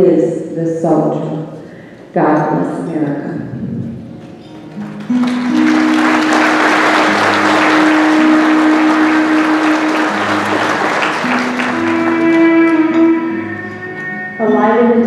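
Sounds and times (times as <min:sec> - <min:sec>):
acoustic guitar slow notes: 0:03.4 - 0:15.0
audience applause: 0:04.7 - 0:13.0.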